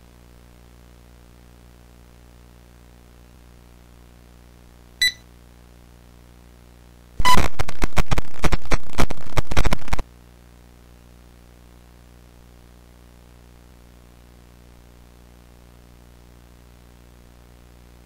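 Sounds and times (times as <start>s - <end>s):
tape static hum: 0.0s - 18.0s
short electronic beep: 5.0s - 5.2s, 7.2s - 7.5s
harsh distorted crackling noise: 7.2s - 10.0s.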